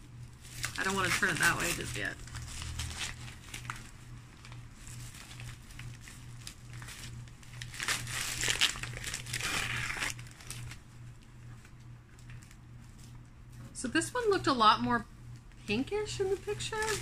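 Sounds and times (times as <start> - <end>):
newspaper crumpling and rustling: 0.3 - 10.9, 11.5 - 13.1, 15.7 - 17.0.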